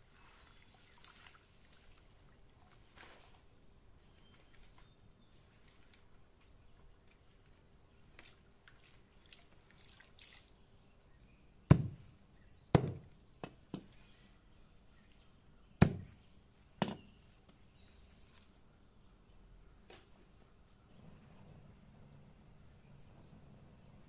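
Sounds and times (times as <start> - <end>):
knife chopping on wood: 11.7 - 12.0, 12.7 - 13.1, 15.8 - 16.2.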